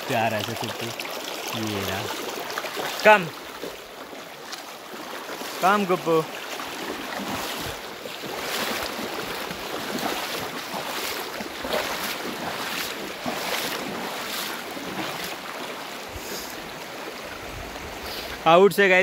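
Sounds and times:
splashing steps wading: 0:00.0 - 0:18.4
stream water rushing: 0:00.0 - 0:19.0.

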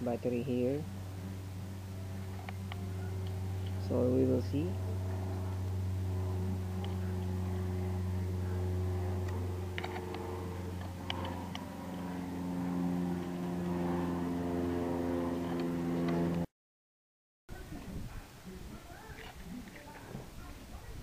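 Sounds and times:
low machine hum: 0:00.0 - 0:16.5.

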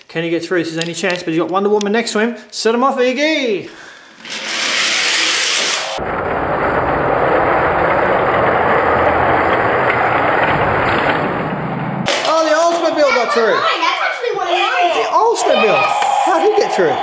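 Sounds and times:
toy cars rolling on plastic track: 0:04.2 - 0:11.2.

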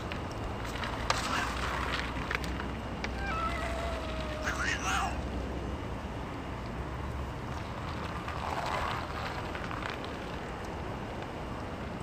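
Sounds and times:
faint cat cries: 0:03.1 - 0:05.2.

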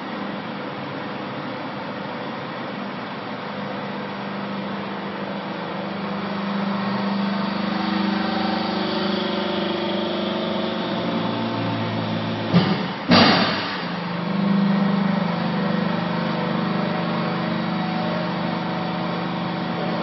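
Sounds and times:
hydraulic motor and pump humming: 0:00.0 - 0:20.0
sharp knock: 0:12.5 - 0:14.0.

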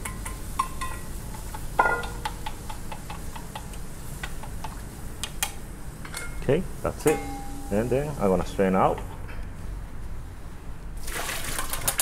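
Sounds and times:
boiling water: 0:00.0 - 0:05.6, 0:11.0 - 0:12.0.

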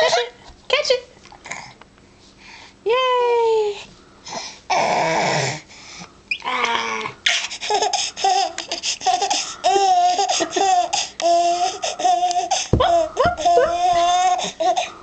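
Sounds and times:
baby laughing: 0:07.3 - 0:14.9.

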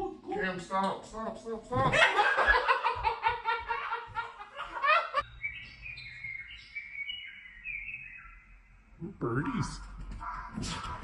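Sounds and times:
bird chirps from television speakers: 0:05.2 - 0:08.8.

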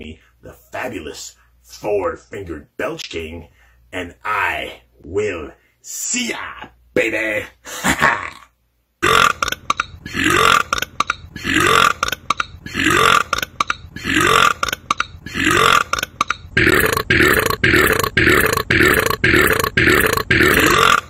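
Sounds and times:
man belching loudly: 0:08.0 - 0:21.0.

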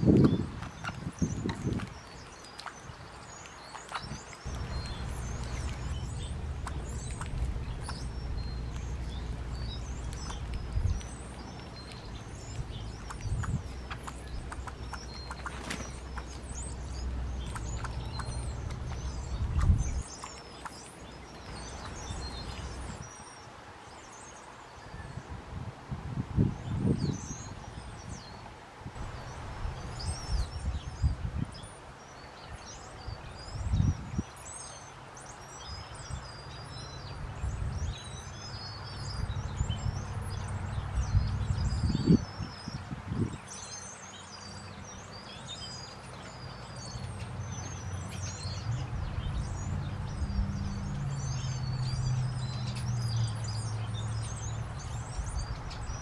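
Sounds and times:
small songbirds chirping: 0:00.0 - 0:56.0
low background rumble: 0:04.5 - 0:20.2.

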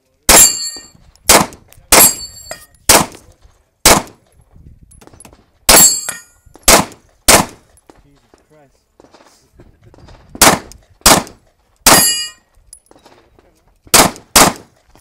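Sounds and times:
steel targets ringing: 0:00.3 - 0:01.0, 0:05.7 - 0:06.4, 0:11.9 - 0:12.4
pistol shots: 0:00.3 - 0:02.3, 0:02.9 - 0:03.2, 0:03.8 - 0:04.2, 0:05.7 - 0:07.7, 0:10.4 - 0:12.4, 0:13.9 - 0:14.8.

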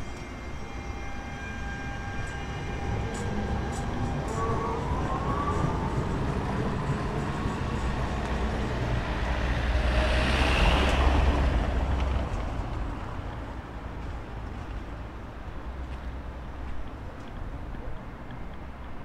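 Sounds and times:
vehicle passing with deep rumble: 0:04.3 - 0:15.2.

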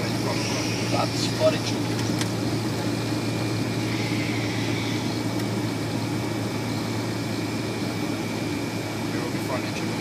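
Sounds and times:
jet engine drone: 0:00.0 - 0:10.0
thin high whine: 0:03.2 - 0:09.4.

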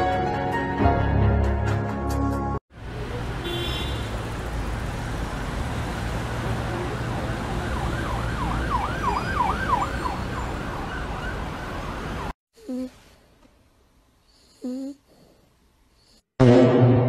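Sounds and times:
emergency siren yelping: 0:06.9 - 0:12.3.

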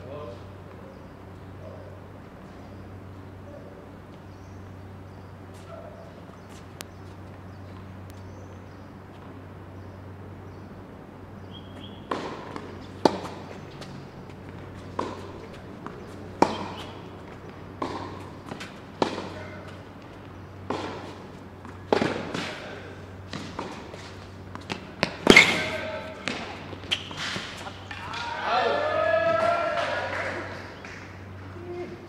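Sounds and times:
steady low hum: 0:00.0 - 0:32.0
tennis ball hits and bounces: 0:11.7 - 0:28.2.

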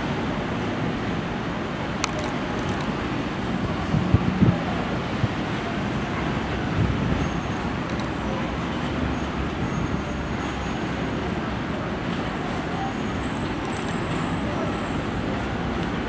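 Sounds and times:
city street traffic: 0:00.0 - 0:16.0
subway train on elevated track: 0:00.0 - 0:16.0.

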